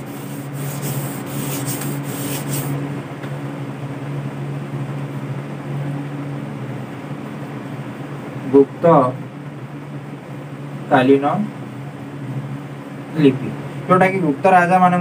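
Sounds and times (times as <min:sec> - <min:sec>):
duster wiping whiteboard: 0:00.0 - 0:02.8
steady low hum: 0:00.0 - 0:15.0.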